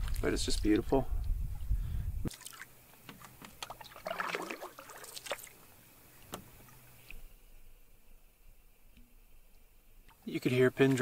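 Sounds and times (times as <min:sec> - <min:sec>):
paddle swishes and drips: 0:02.3 - 0:07.3, 0:08.9 - 0:11.0.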